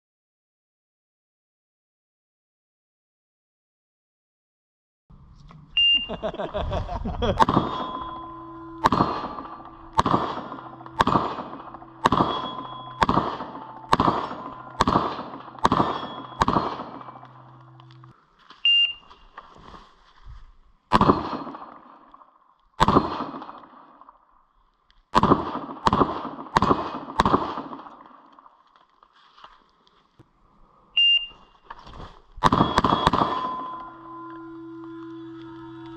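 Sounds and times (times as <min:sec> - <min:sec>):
pistol shots with echo: 0:07.4 - 0:17.8, 0:20.9 - 0:22.0, 0:22.8 - 0:23.9, 0:25.2 - 0:28.3, 0:32.4 - 0:34.0.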